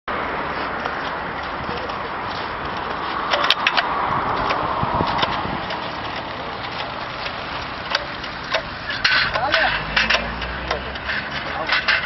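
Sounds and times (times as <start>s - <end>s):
road traffic: 0.0s - 12.0s
sharp knocks and clicks: 2.7s - 12.0s.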